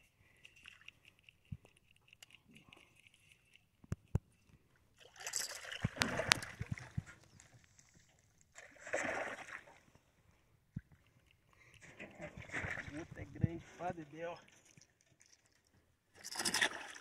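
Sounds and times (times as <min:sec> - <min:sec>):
fish thrashing and splashing water: 0:05.0 - 0:08.0, 0:08.6 - 0:09.9, 0:16.2 - 0:17.0.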